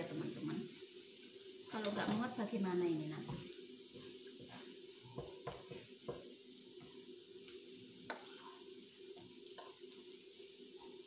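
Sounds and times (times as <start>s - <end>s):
noodles sizzling in a pan: 0.0s - 11.0s
spatula knocking and scraping pan: 3.2s - 7.0s, 9.2s - 9.9s.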